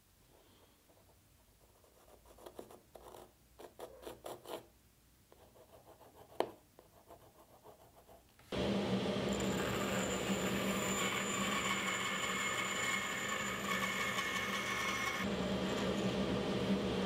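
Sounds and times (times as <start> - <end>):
pencil scratching on wood: 1.0 - 4.7, 5.4 - 8.2.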